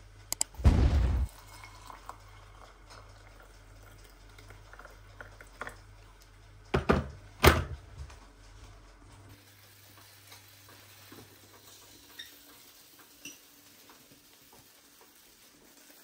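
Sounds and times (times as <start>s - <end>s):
water poured from kettle: 1.3s - 5.8s.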